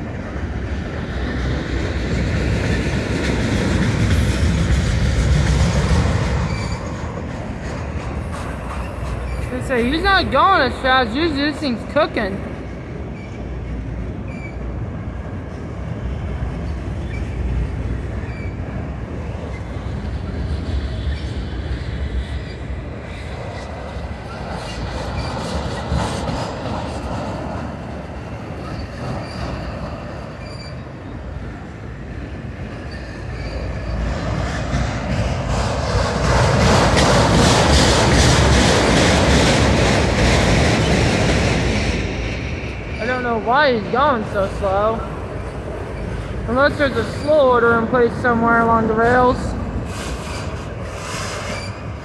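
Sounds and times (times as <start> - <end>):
freight cars rumbling and rattling: 0.0 - 52.0.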